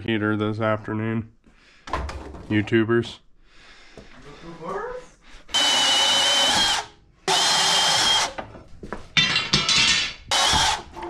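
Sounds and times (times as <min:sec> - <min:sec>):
power saw cutting steel pipe: 0:10.3 - 0:11.0.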